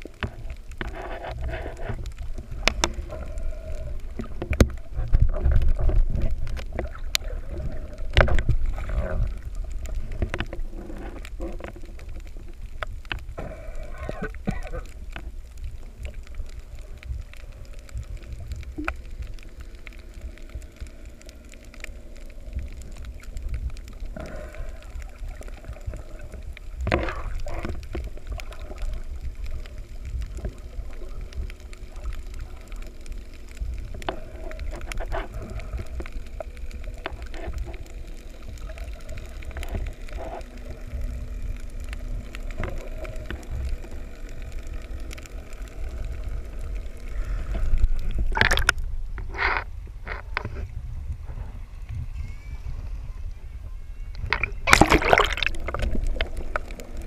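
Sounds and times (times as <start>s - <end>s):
underwater clicks and knocks: 0.0s - 13.4s, 25.3s - 29.0s, 47.5s - 50.7s, 54.2s - 57.0s
underwater water rumble: 0.0s - 57.0s.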